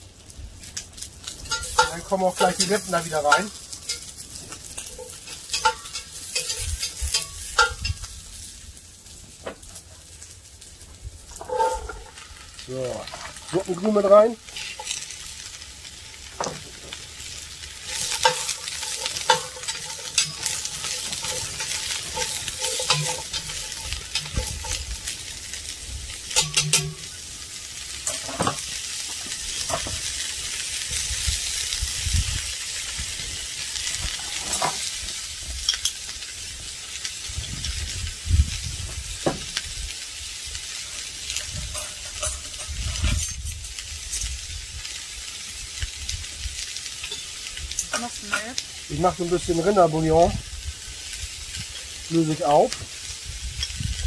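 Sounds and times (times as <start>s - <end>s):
vegetables sizzling in a pot: 0.0s - 54.0s
utensil scraping a pot: 1.4s - 8.0s, 11.3s - 12.4s, 17.8s - 25.2s.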